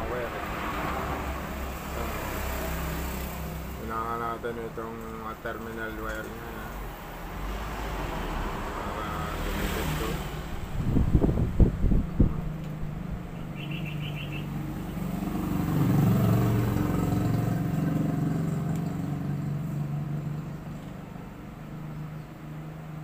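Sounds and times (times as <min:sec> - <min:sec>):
low mechanical drone: 0:10.1 - 0:22.7.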